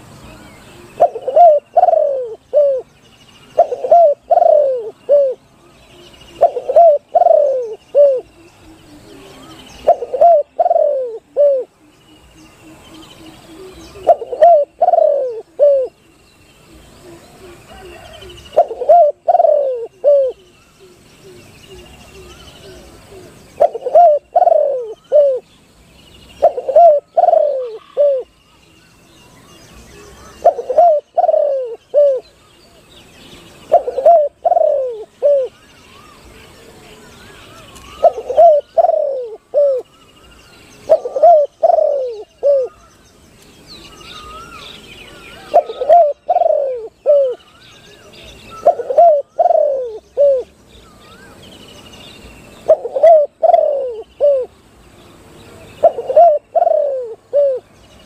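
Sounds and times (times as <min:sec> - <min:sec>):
small birds twittering: 0:00.0 - 0:58.0
dove cooing: 0:00.7 - 0:02.9, 0:03.5 - 0:05.4, 0:06.0 - 0:11.9, 0:12.6 - 0:16.0, 0:16.6 - 0:25.5, 0:26.3 - 0:28.4, 0:29.9 - 0:32.4, 0:33.4 - 0:36.3, 0:37.2 - 0:39.9, 0:40.8 - 0:42.8, 0:44.2 - 0:50.6, 0:52.6 - 0:54.5, 0:55.6 - 0:57.7.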